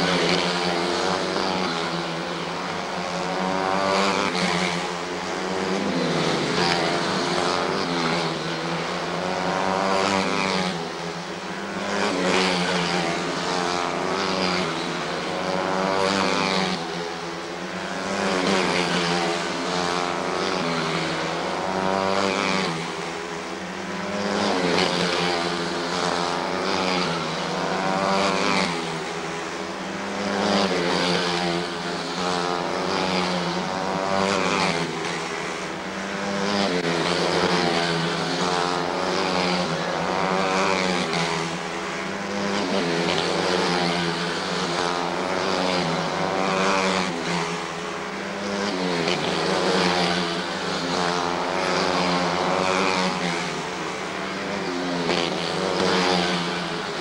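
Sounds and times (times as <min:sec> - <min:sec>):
small race car engines buzzing: 0:00.0 - 0:57.0.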